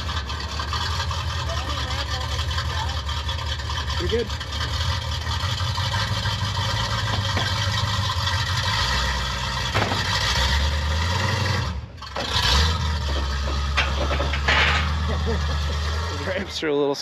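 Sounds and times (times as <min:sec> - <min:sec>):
car engine at low revs: 0:00.0 - 0:17.0.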